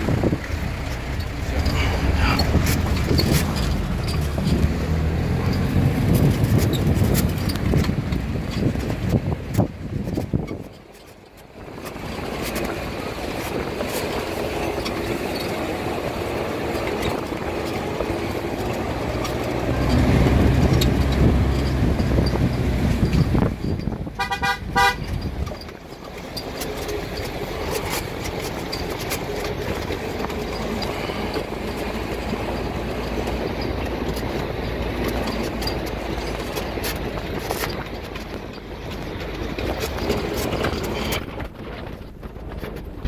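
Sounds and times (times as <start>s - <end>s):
jeep driving on gravel: 0.0s - 43.0s
vehicle horn toots: 24.2s - 25.2s.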